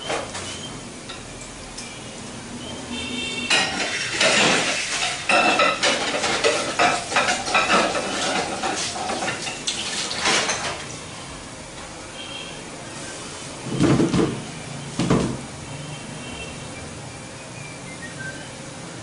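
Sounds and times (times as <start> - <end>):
oil sizzling and bubbling: 0.0 - 12.0
metal utensils and dishes clattering: 3.5 - 10.8.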